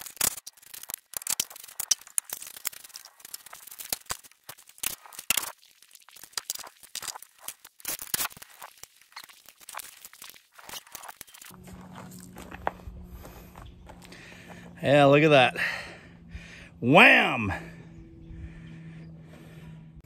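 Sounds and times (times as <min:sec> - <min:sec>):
footsteps on gravel: 0:00.0 - 0:15.9.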